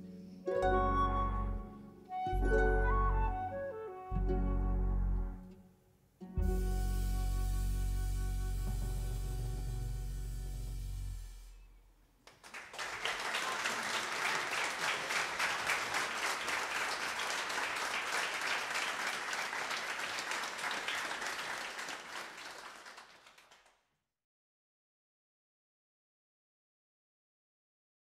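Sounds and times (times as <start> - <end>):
jazz band playing: 0.6 - 5.5, 6.3 - 11.2
audience applauding: 12.2 - 23.8.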